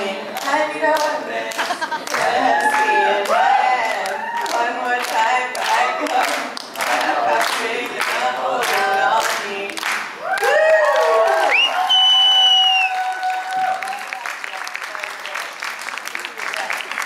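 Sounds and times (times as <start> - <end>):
voices singing unaccompanied: 0.0 - 10.0.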